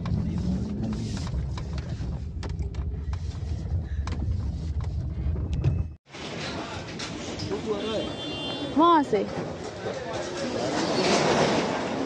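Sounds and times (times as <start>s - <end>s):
car engine and road rumble: 0.0s - 6.0s.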